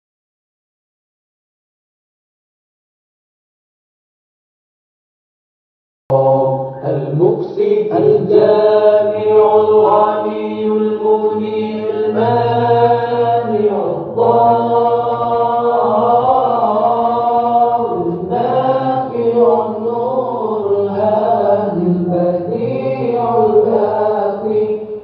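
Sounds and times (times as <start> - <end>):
children chanting in unison: 9.6 - 24.9.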